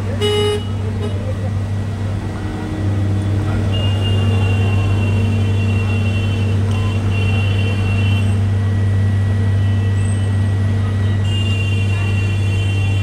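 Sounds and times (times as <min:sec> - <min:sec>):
traffic engine hum: 0:00.0 - 0:13.0.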